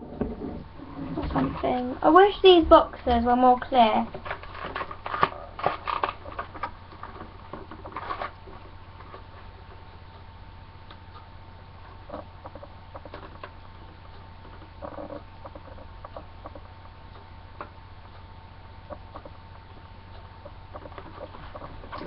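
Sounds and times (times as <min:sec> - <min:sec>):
faint steady hum: 0:00.0 - 0:22.0
plastic packaging clicks and rustles: 0:04.1 - 0:09.5.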